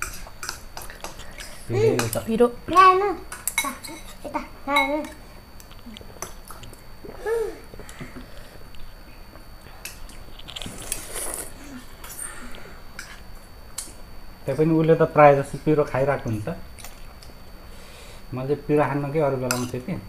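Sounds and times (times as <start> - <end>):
people chewing and biting: 5.6 - 14.0
slurping noodles: 10.5 - 12.2.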